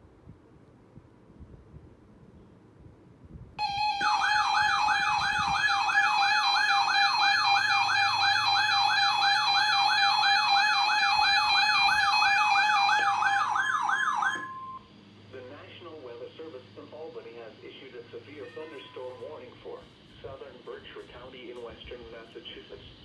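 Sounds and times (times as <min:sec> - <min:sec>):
electronic alert alarm warbling: 0:03.6 - 0:14.9
steady alarm tone: 0:03.6 - 0:15.0.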